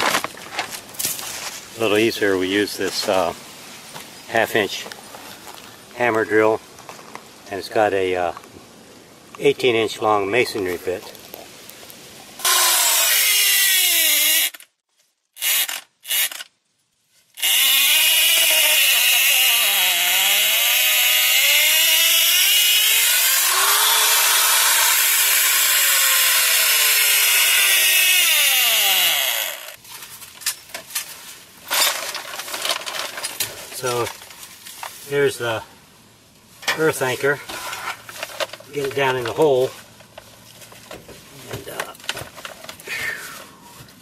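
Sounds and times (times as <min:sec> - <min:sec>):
hammer drill boring into soil: 0:12.4 - 0:14.7, 0:15.4 - 0:16.5, 0:17.4 - 0:29.8.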